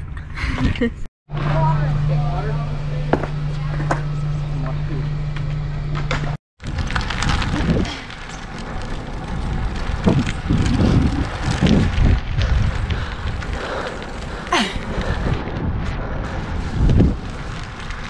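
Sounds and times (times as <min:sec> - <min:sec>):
tyre noise on asphalt: 0:05.3 - 0:18.0
wind buffeting microphone: 0:06.6 - 0:18.0.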